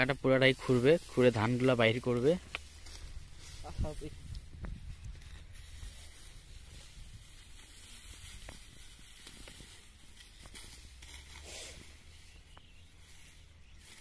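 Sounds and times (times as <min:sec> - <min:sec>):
straw rustling and crackling: 0:00.0 - 0:14.0.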